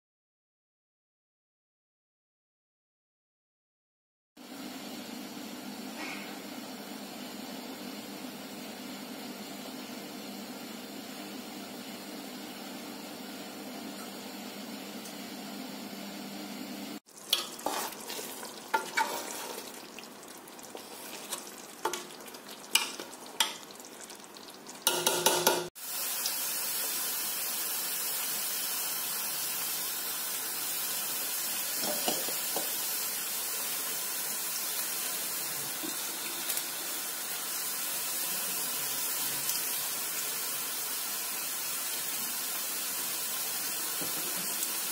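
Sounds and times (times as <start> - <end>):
pot of water hissing on stove: 4.4 - 44.9
spoon scraping metal pan: 17.3 - 19.8.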